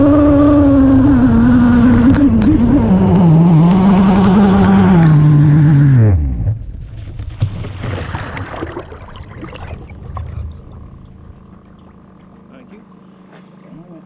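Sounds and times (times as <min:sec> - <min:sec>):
water sloshing around hull: 0:06.8 - 0:13.6
model boat engine running: 0:09.0 - 0:14.0.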